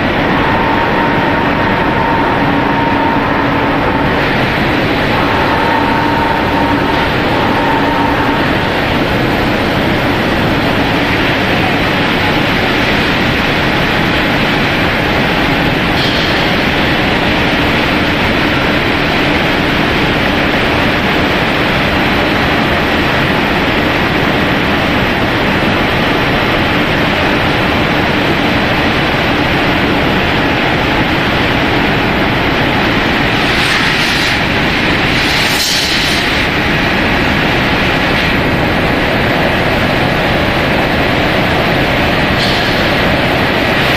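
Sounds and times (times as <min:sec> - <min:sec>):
faint hum: 0:00.0 - 0:23.8
loud steady machinery noise: 0:00.0 - 0:43.9.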